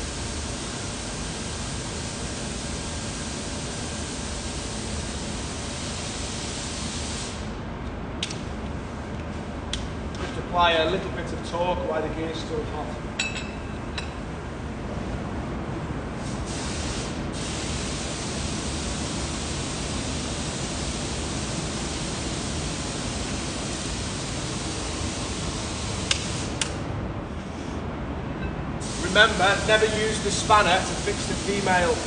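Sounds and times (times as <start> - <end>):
steady hiss: 28.8 - 32.0.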